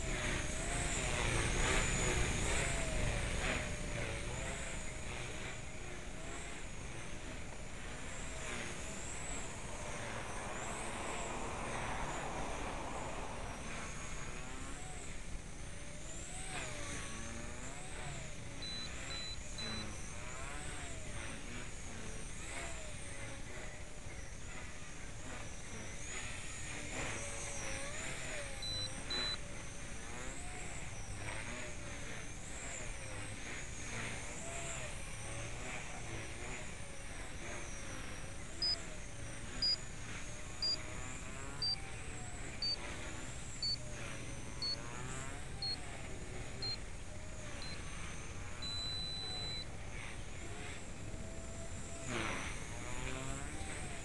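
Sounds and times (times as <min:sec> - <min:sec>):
rc helicopter rotor whining: 0:00.0 - 0:54.0
short electronic beeps: 0:18.6 - 0:19.8, 0:28.6 - 0:29.4, 0:41.6 - 0:41.8, 0:42.6 - 0:42.8, 0:43.6 - 0:43.8, 0:44.6 - 0:44.8, 0:45.6 - 0:45.8, 0:47.6 - 0:47.9, 0:48.6 - 0:49.7.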